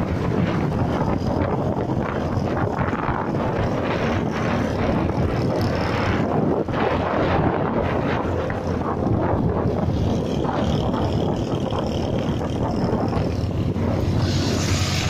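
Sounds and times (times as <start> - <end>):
motorcycle engine running: 0.0 - 15.0
road noise: 0.0 - 15.0
wind rushing over microphone: 0.0 - 15.0.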